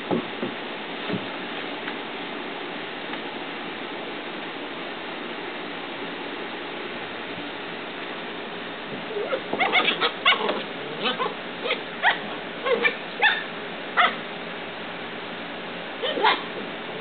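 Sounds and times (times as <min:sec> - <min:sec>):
steady hiss: 0:00.0 - 0:17.0
puppies yipping and barking: 0:09.1 - 0:14.2, 0:16.0 - 0:16.5.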